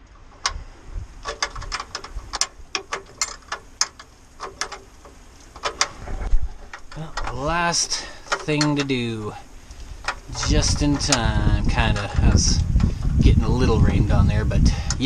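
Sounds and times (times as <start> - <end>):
hand tool clicking on metal: 1.2 - 6.0, 6.6 - 12.9.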